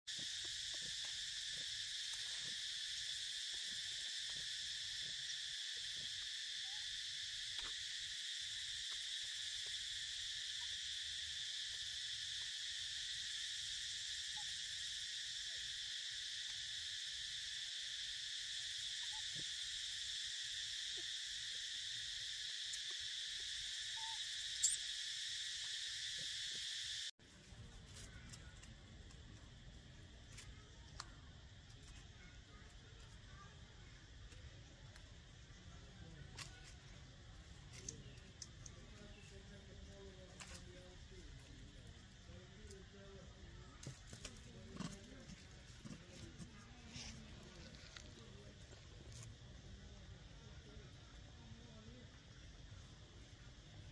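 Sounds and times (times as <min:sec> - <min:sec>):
insect chorus buzzing: 0:00.1 - 0:27.2, 0:29.3 - 0:53.9
sharp chirp: 0:22.7 - 0:26.2.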